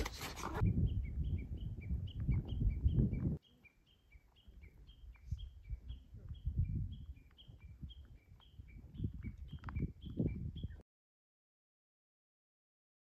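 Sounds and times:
songbird chirping: 0.6s - 10.8s.

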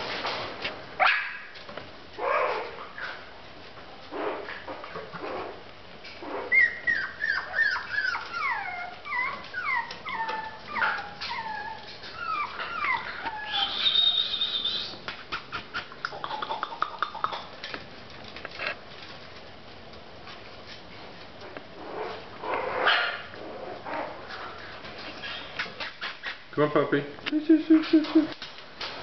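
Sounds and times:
puppies whimpering: 6.2s - 15.0s
puppy squealing: 6.2s - 15.0s.

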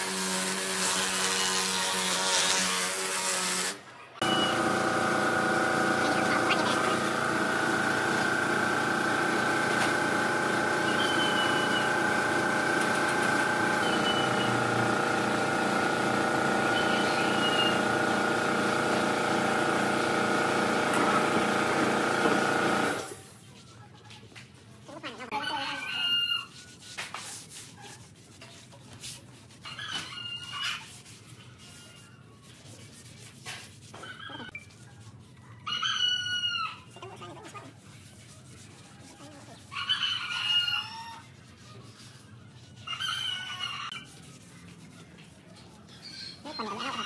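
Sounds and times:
rooster crowing: 39.7s - 41.4s, 42.8s - 44.1s, 46.6s - 47.0s.

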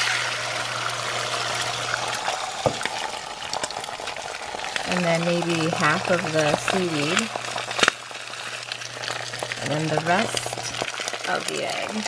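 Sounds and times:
eggs sizzling in a frying pan: 0.0s - 12.0s.

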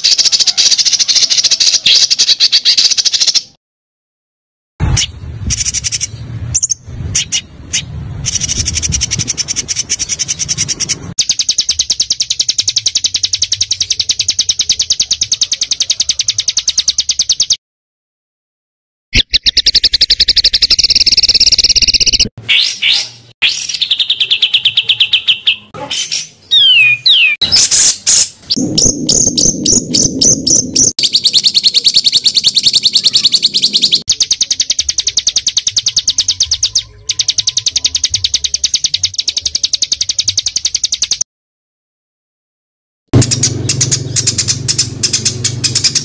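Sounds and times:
songbirds trilling: 0.0s - 3.5s, 5.0s - 17.6s, 19.2s - 41.2s, 43.2s - 46.0s
harsh low bird rattling: 5.5s - 17.6s, 43.2s - 46.0s.

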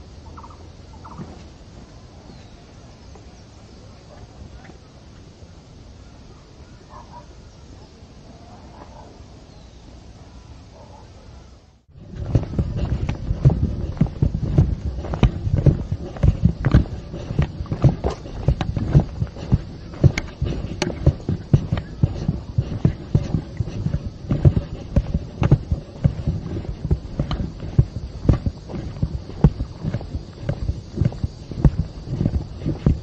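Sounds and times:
footsteps on dirt trail: 1.0s - 3.3s, 11.9s - 33.0s.

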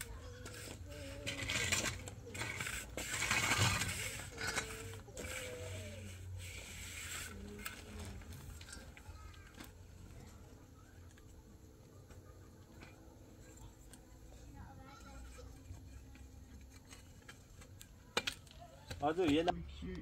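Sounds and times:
concrete blocks scraping on gravel: 0.0s - 10.4s.

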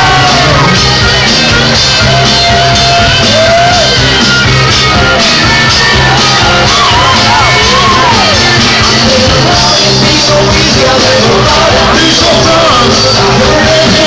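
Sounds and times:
man shouting and singing: 0.0s - 1.0s, 5.7s - 14.0s
live rock band playing: 0.0s - 14.0s.

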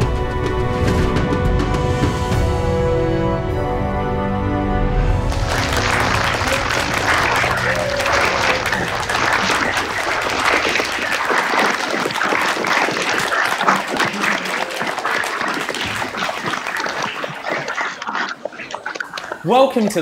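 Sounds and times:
applause: 5.3s - 17.8s.

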